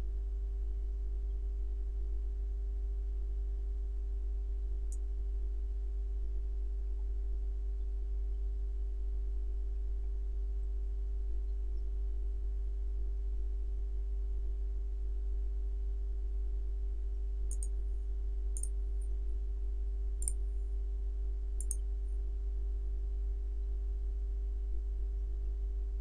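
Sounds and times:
faint steady buzz: 0:00.0 - 0:26.0
steady low hum: 0:00.0 - 0:26.0
computer mouse clicks: 0:17.5 - 0:17.7, 0:21.6 - 0:21.8.

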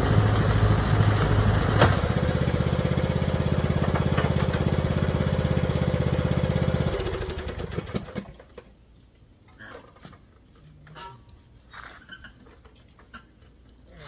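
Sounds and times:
lawn mower engine running down: 0:00.0 - 0:08.7
small clicks and rustles: 0:08.4 - 0:14.0.

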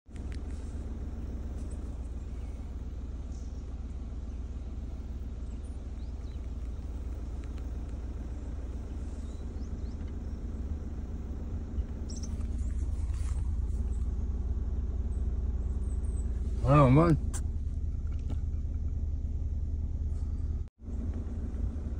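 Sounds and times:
car engine rumbling: 0:00.0 - 0:21.9
faint bird chirps: 0:00.6 - 0:14.2.

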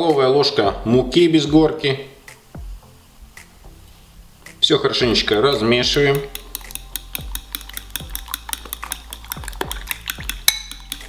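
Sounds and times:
utensil clicking against bowl: 0:05.3 - 0:11.0.

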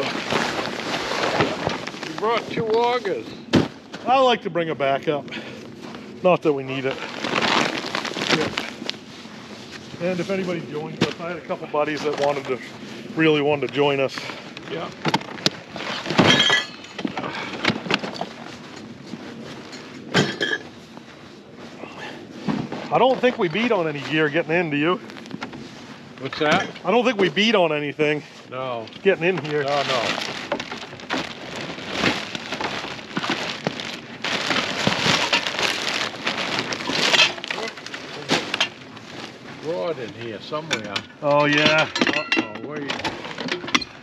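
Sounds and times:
plastic garbage bag rustling: 0:00.0 - 0:05.0, 0:05.8 - 0:39.9
knocks and clatters of gear: 0:13.6 - 0:20.7, 0:29.0 - 0:44.0.

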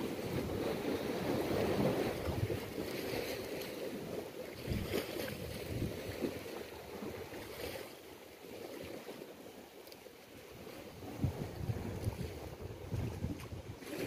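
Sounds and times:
wind gusting on microphone: 0:00.0 - 0:03.2, 0:04.5 - 0:07.4, 0:10.6 - 0:14.0
sea waves against rocky shore: 0:00.0 - 0:14.0.

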